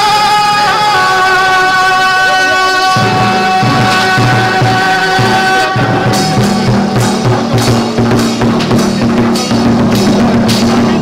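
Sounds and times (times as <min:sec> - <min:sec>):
barrel drum beaten with sticks: 0:02.9 - 0:11.0.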